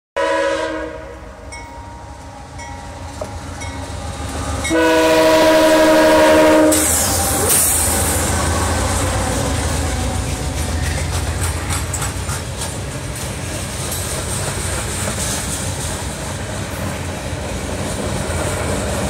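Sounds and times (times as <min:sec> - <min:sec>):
train horn chord: 0:00.2 - 0:01.6, 0:04.6 - 0:07.7
wheels rushing on rails: 0:00.9 - 0:19.0
locomotives rumbling past: 0:01.3 - 0:19.0.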